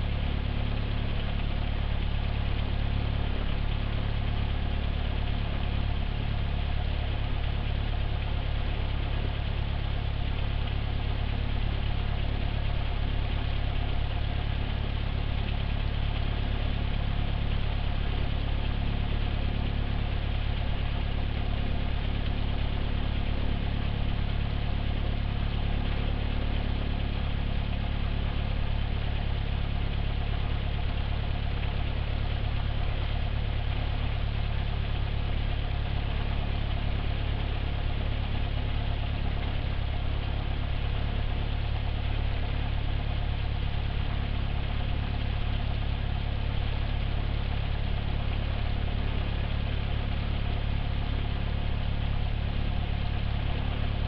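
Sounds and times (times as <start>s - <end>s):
propeller aircraft engine idling: 0.0s - 54.0s.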